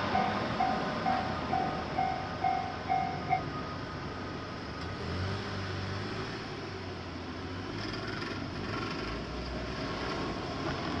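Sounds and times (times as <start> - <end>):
car engines idling: 0.0 - 4.9
road traffic noise: 0.0 - 11.0.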